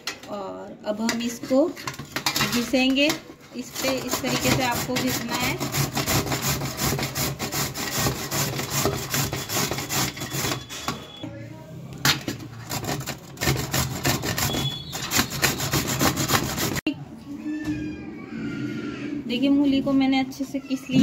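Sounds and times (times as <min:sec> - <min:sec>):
radish grating on metal grater: 0:03.6 - 0:10.7, 0:12.6 - 0:16.9.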